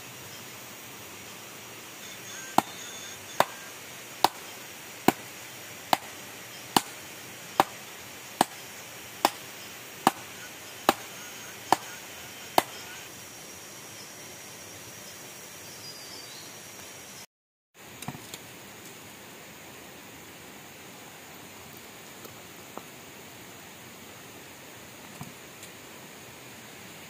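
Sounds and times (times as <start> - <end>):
blade chopping wood: 2.6 - 6.2, 6.8 - 11.1, 11.7 - 12.0, 12.6 - 12.9.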